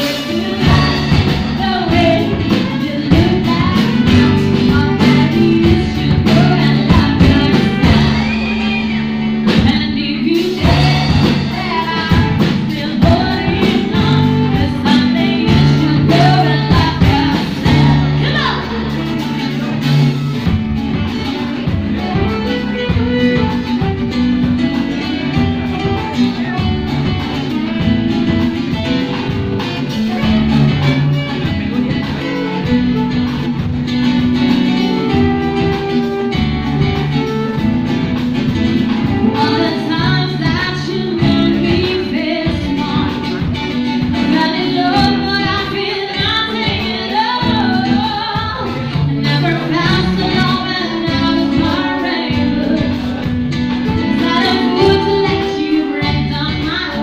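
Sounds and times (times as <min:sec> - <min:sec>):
woman singing: 0:00.0 - 0:19.9, 0:33.9 - 0:57.0
live band playing: 0:00.0 - 0:57.0.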